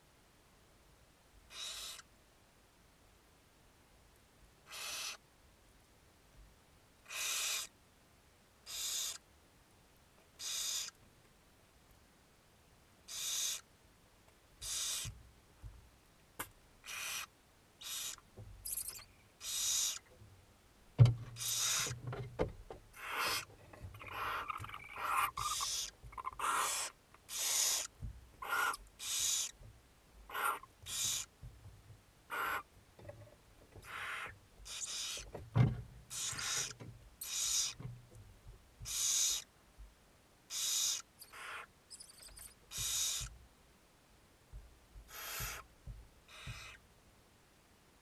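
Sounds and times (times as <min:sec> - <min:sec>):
owls hissing calls: 0:01.5 - 0:02.1, 0:04.7 - 0:05.2, 0:07.1 - 0:07.7, 0:08.7 - 0:09.2, 0:10.4 - 0:11.0, 0:13.1 - 0:13.7, 0:14.6 - 0:15.2, 0:16.8 - 0:20.1, 0:21.4 - 0:22.0, 0:23.0 - 0:29.6, 0:30.3 - 0:31.3, 0:32.3 - 0:32.7, 0:33.8 - 0:35.3, 0:36.1 - 0:37.8, 0:38.8 - 0:39.5, 0:40.5 - 0:43.3, 0:45.1 - 0:45.7, 0:46.3 - 0:46.8
sharp thump: 0:21.0 - 0:21.4, 0:35.4 - 0:35.9.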